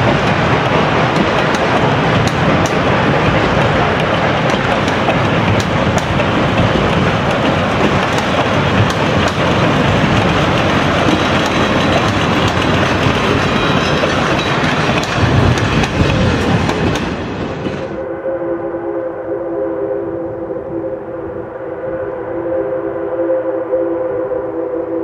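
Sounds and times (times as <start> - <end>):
train wheels clattering over joints: 0.0 - 18.0.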